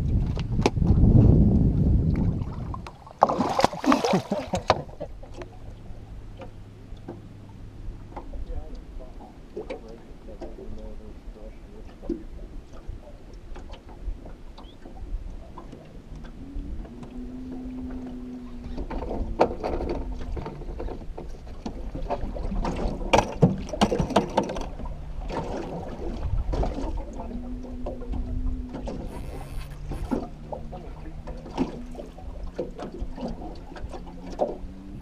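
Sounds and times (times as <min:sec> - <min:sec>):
knocks and clatter on boat: 0:00.0 - 0:35.0
low wind rumble: 0:00.0 - 0:35.0
water lapping at hull: 0:00.0 - 0:35.0
steady hum: 0:27.3 - 0:32.5.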